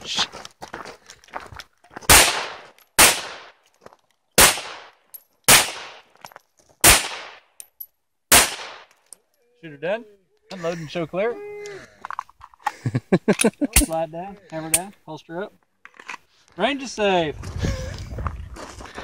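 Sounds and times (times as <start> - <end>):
pistol shots with echo: 2.1 - 3.6, 4.4 - 6.0, 6.8 - 7.5, 8.3 - 8.9.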